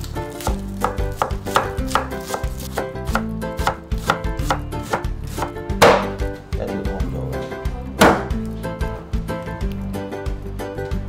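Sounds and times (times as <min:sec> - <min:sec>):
background music: 0:00.0 - 0:11.0
knife tapping on cutting board: 0:05.8 - 0:06.2.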